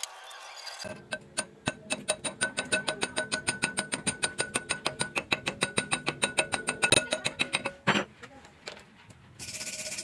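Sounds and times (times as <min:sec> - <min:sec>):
chipping hammer tapping metal: 0:00.8 - 0:08.1.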